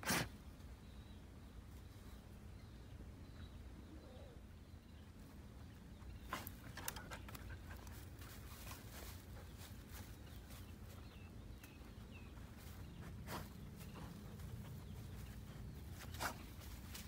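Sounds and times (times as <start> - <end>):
dog rustling through dry grass: 7.9 - 11.0, 12.5 - 17.0.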